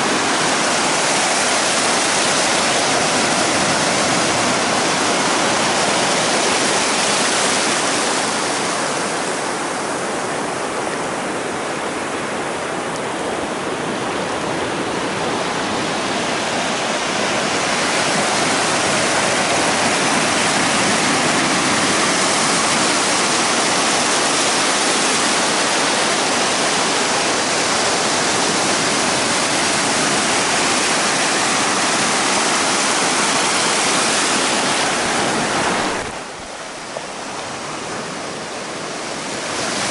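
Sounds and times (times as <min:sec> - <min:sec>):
surf washing up a beach: 0:00.0 - 0:39.9.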